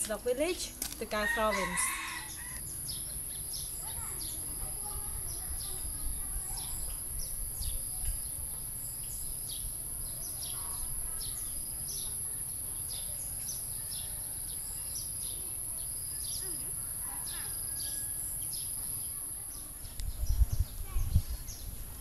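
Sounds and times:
wind rumble on microphone: 0:19.8 - 0:22.0.

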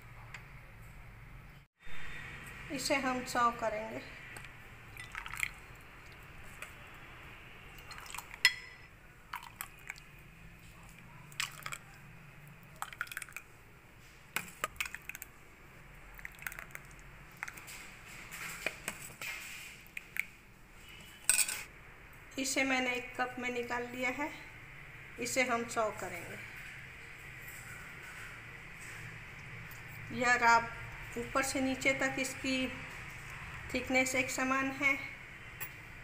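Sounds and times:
thick liquid pouring and dripping: 0:04.9 - 0:06.6, 0:07.7 - 0:08.6, 0:09.3 - 0:13.5, 0:14.4 - 0:15.4, 0:16.0 - 0:17.7.

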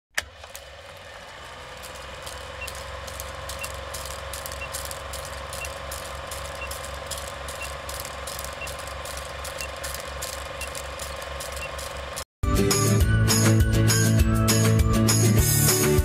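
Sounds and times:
film projector whirring: 0:00.1 - 0:12.3
film crackle and pops: 0:01.6 - 0:12.3.

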